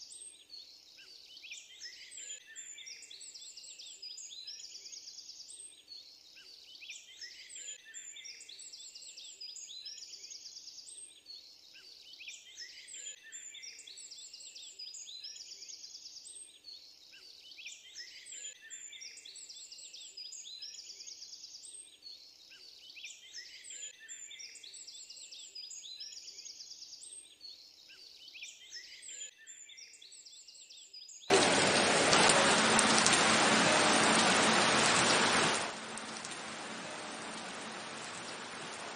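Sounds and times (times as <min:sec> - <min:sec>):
birds chirping and trilling: 0:11.4 - 0:38.9
heavy rain downpour: 0:31.3 - 0:38.9.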